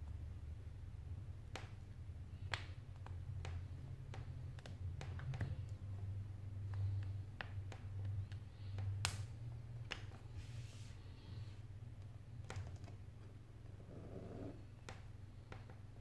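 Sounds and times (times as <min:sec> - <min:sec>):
steady low hum: 0:00.0 - 0:16.0
soft scrape: 0:10.4 - 0:11.1.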